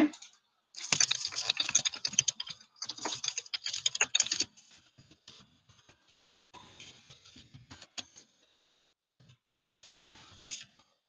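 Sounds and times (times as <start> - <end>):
computer keyboard typing: 0.8 - 4.5.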